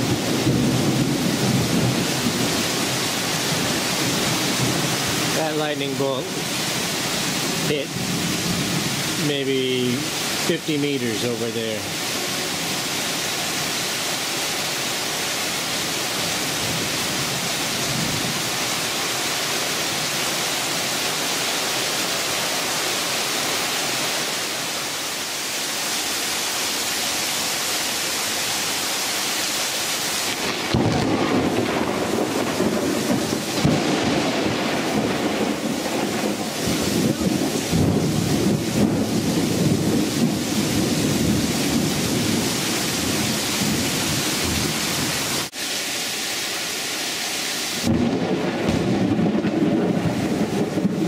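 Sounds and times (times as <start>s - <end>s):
thunder rumbling: 0.0s - 13.0s, 30.3s - 45.5s, 47.8s - 51.0s
heavy rain hissing: 0.0s - 51.0s.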